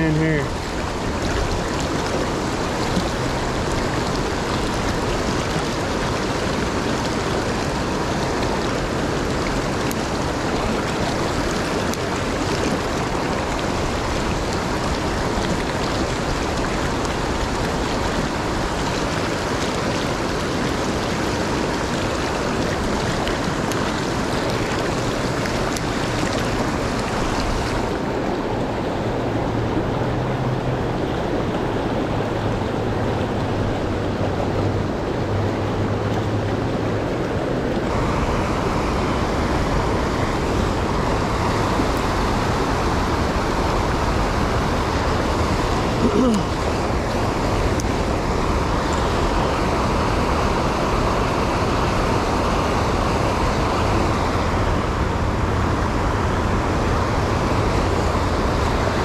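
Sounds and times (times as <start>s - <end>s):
river current rushing: 0.0s - 59.0s.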